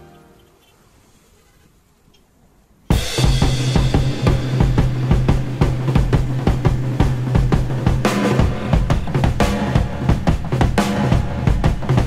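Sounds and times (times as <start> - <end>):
drum kit: 2.9 - 12.0
steady bass line: 2.9 - 12.0.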